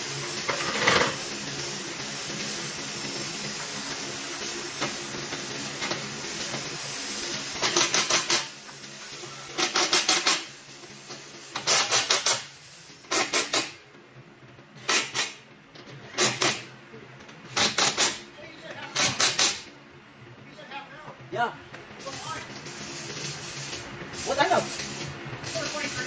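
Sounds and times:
steady hiss: 0.0s - 13.8s, 22.0s - 26.0s.

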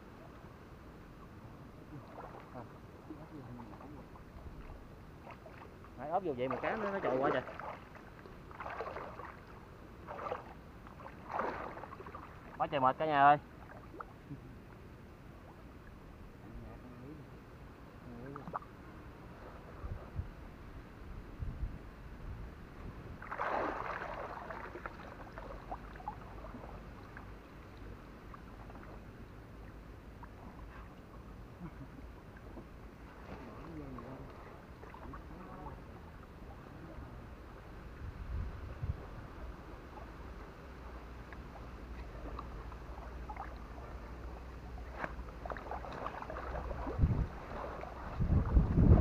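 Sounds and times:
low steady rumble: 0.0s - 49.0s
shallow water sloshing: 1.8s - 14.4s, 23.1s - 49.0s
small splashes and drips: 1.9s - 12.8s, 13.6s - 14.4s, 23.2s - 36.5s, 41.2s - 48.7s
fishing net dragged through water: 6.3s - 12.5s, 23.2s - 26.7s, 42.2s - 49.0s.

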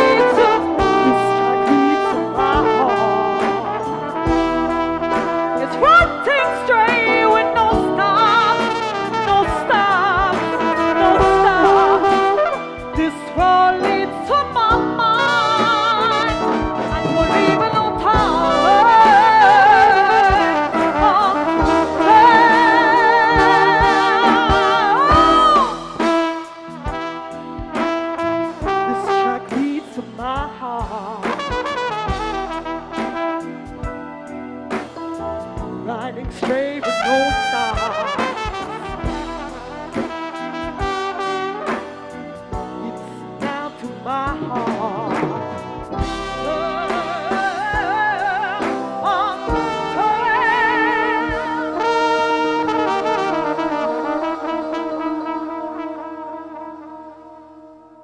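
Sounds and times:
drum beats: 0.0s - 6.4s, 7.0s - 36.8s, 37.4s - 54.8s
flugelhorn playing held notes: 0.0s - 30.4s, 31.2s - 36.1s, 36.8s - 58.0s
live band: 0.0s - 58.0s
drum kit strikes: 0.4s - 3.0s, 44.2s - 49.9s.

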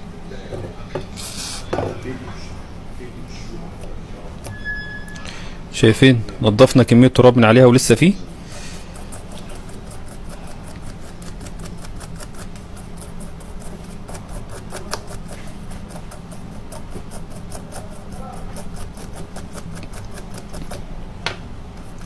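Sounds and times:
brush scrubbing mesh grille: 8.4s - 20.9s.

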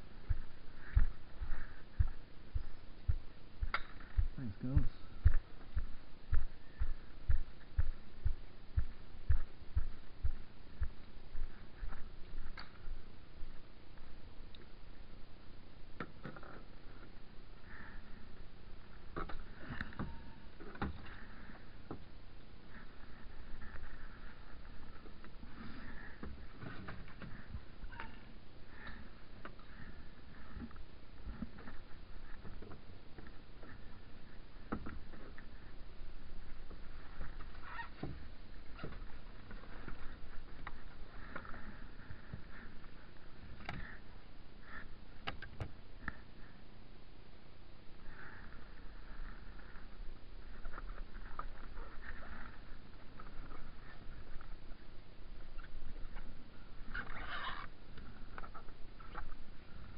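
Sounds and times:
steady low rumble: 0.0s - 15.9s.

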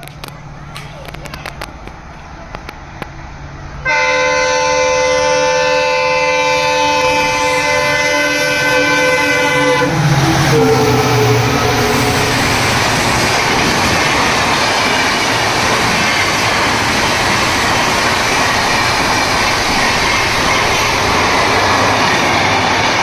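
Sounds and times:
train passing close by: 0.0s - 23.0s
train horn long blast: 3.8s - 12.4s.

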